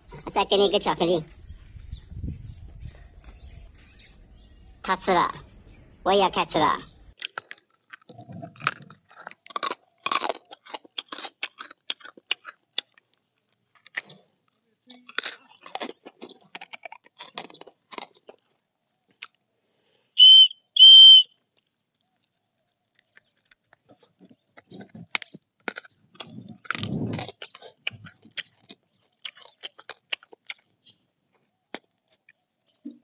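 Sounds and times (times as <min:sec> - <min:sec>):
hard candy crunching: 0:07.1 - 0:32.8
shrill whistle blasts: 0:20.2 - 0:21.3.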